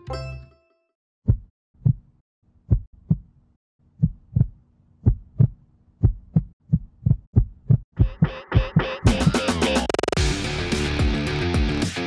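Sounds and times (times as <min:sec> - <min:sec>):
deep heartbeat thumps: 0:01.2 - 0:02.1, 0:02.7 - 0:03.3, 0:04.0 - 0:09.2.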